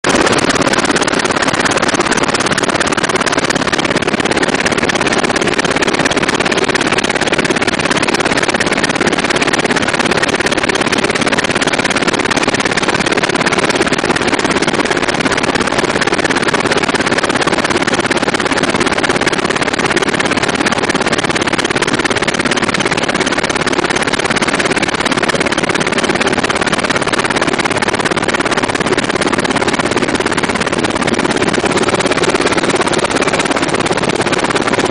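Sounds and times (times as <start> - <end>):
helicopter rotor and engine noise: 0.0 - 34.9.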